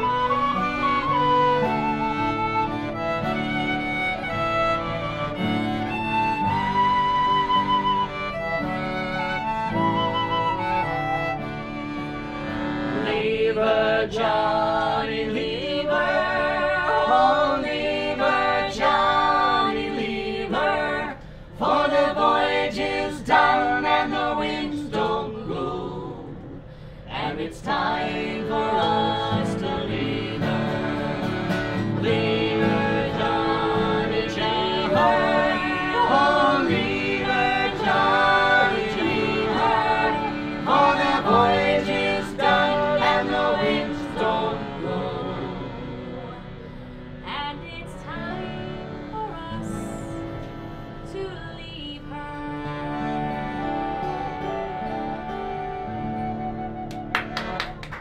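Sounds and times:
fiddle: 0.0 - 13.5, 28.1 - 46.5, 52.1 - 57.8
accordion: 0.0 - 26.0, 27.2 - 58.0
acoustic guitar: 0.0 - 58.0
men singing along: 27.1 - 46.2.

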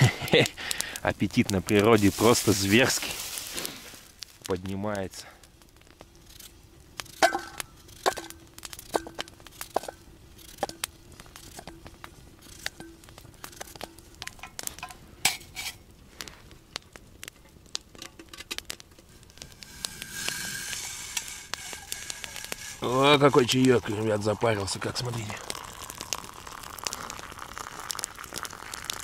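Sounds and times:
hissing rush: 0.0 - 7.2, 19.0 - 29.0.

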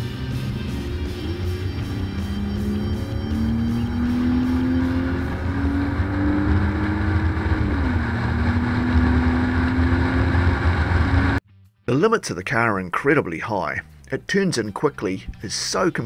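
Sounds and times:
car engine accelerating: 0.0 - 11.4
road rumble: 0.0 - 11.4.

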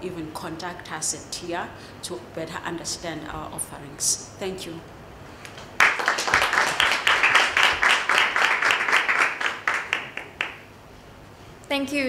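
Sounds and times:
audience applauding: 5.8 - 10.6.

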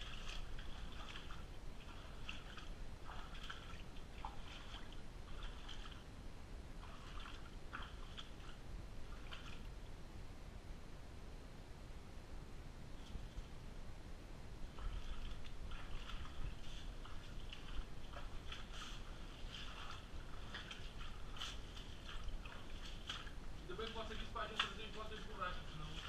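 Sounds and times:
footsteps splashing in shallow water: 0.0 - 6.1, 6.8 - 9.8, 14.6 - 26.0
low steady rumble: 0.0 - 26.0.

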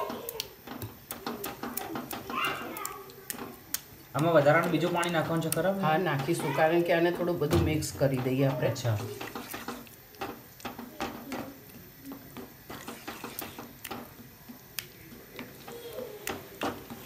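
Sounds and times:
gravy being stirred: 0.0 - 17.0
wooden spatula scraping pan: 4.8 - 14.4, 15.3 - 17.0.

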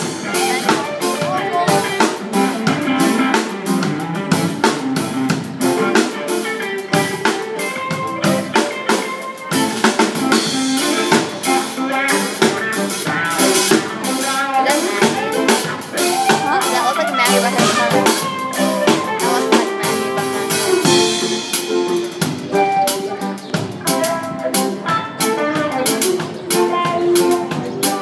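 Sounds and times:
drum kit beat: 0.0 - 28.0
electric guitars: 0.0 - 28.0.

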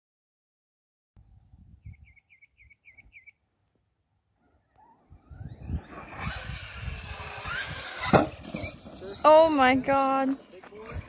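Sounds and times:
wind rumble on microphone: 1.2 - 3.2, 5.0 - 10.0, 10.8 - 11.0
bird chirping: 1.2 - 3.6
rc truck motor whine: 4.5 - 11.0.

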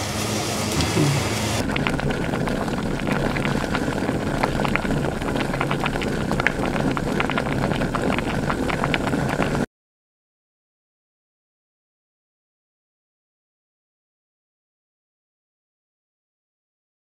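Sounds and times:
stew bubbling and sizzling in a pot: 0.0 - 9.7.

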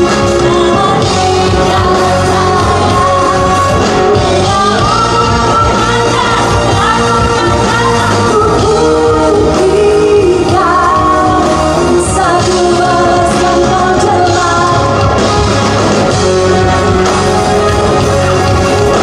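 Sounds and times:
woman singing: 0.0 - 15.2
live rock band: 0.0 - 19.0.

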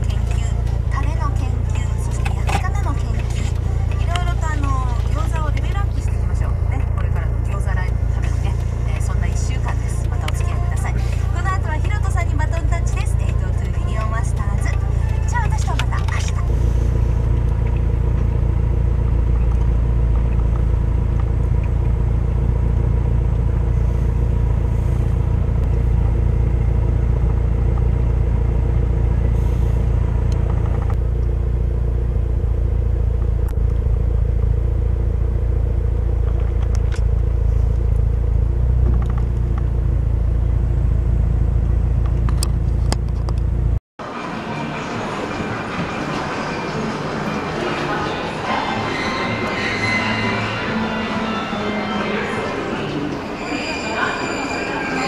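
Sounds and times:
low rumble in car cabin: 0.0 - 43.8
steady hum: 0.0 - 54.1.

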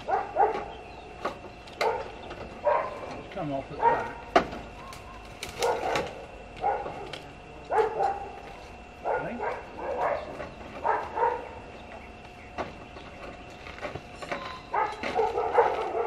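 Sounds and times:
dog barking: 0.0 - 0.8, 1.8 - 3.1, 3.8 - 5.0, 5.6 - 8.4, 9.0 - 11.6, 14.7 - 16.0.

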